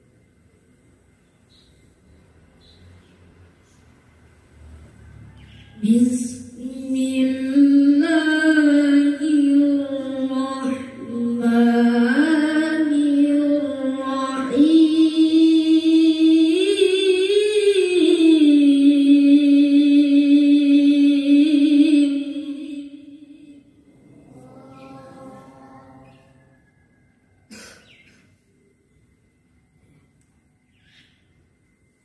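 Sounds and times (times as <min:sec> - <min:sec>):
boy reciting in melodic chant: 0:05.8 - 0:26.6.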